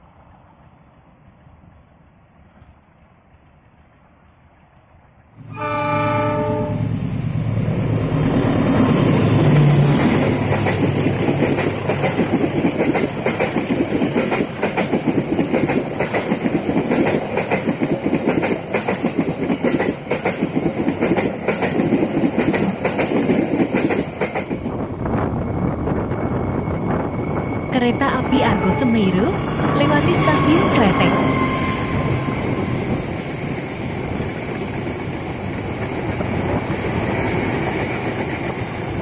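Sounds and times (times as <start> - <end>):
locomotive passing: 0.0 - 39.0
train horn blast: 5.4 - 7.0, 28.2 - 32.8
train wheels clattering over rail joints: 8.7 - 24.7.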